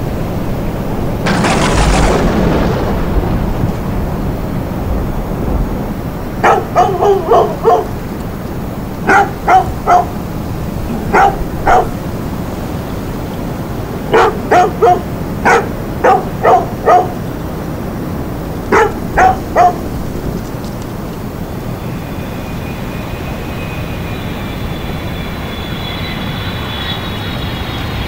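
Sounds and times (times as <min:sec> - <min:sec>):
dog barking: 0:06.4 - 0:08.2, 0:09.0 - 0:12.4, 0:14.0 - 0:17.5, 0:18.6 - 0:20.4.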